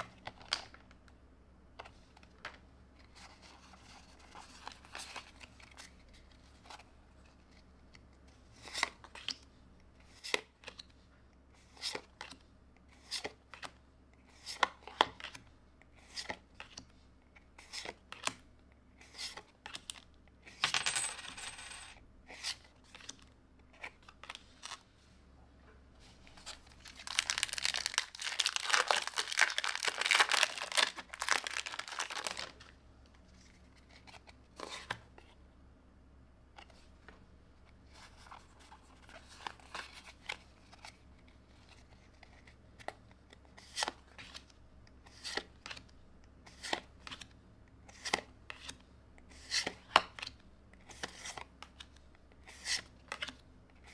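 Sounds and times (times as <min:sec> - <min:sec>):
cards rustling: 0:26.0 - 0:32.7, 0:47.9 - 0:53.9.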